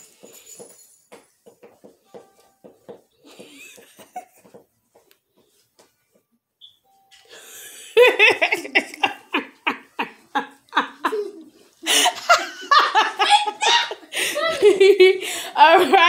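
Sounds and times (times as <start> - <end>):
hearty laughter: 7.4 - 15.2.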